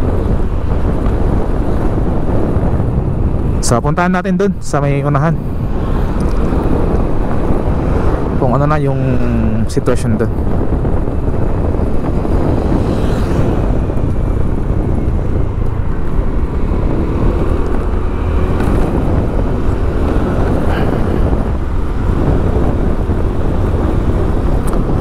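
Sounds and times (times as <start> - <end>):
vehicle and road rumble: 0.0 - 25.0.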